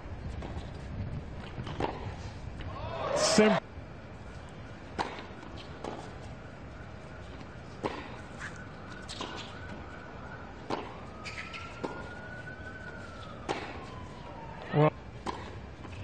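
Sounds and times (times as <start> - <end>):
outdoor ambience hiss: 0.0 - 16.0
racket hitting tennis ball: 10.7 - 12.1, 13.5 - 13.8.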